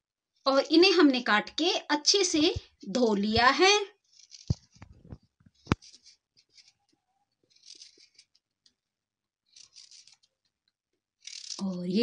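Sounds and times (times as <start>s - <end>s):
knife scraping gourd skin: 4.0s - 4.8s, 7.5s - 8.5s, 9.5s - 10.4s, 11.2s - 11.6s.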